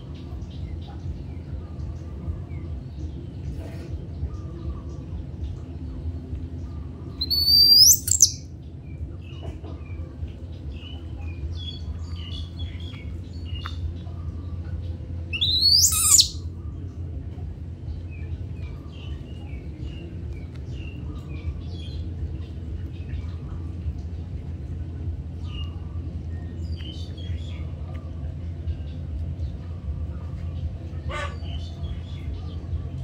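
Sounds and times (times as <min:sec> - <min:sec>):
birds chirping: 0:00.0 - 0:17.1
steady low hum: 0:00.0 - 0:33.0
shrill rising bird calls: 0:07.2 - 0:08.4, 0:15.3 - 0:16.4.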